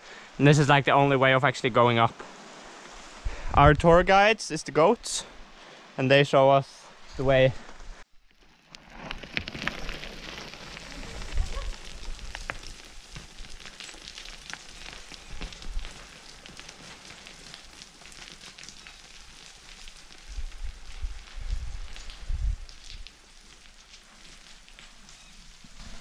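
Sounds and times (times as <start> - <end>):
footsteps on loose rock: 8.8 - 17.3.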